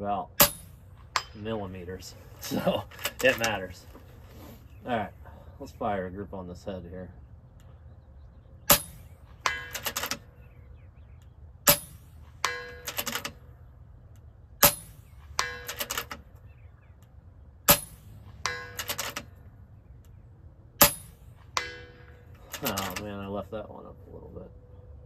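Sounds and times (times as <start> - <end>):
air rifle shots: 0.4 - 3.8, 8.7 - 10.3, 11.6 - 13.4, 14.6 - 16.3, 17.6 - 19.4, 20.8 - 23.0
metallic clicks with ringing tone: 8.7 - 10.6, 14.2 - 17.1, 17.7 - 20.2.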